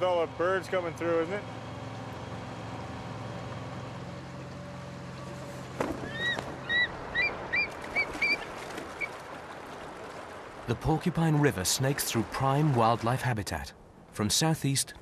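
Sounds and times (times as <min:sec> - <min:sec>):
low motor hum: 0:00.0 - 0:11.5
birds calling: 0:05.8 - 0:09.2.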